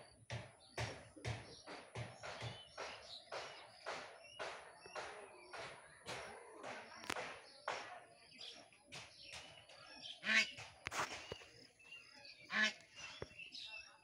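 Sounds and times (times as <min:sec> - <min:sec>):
footsteps: 0:00.0 - 0:13.4
loud honking bird calls: 0:10.1 - 0:10.6, 0:12.4 - 0:12.9.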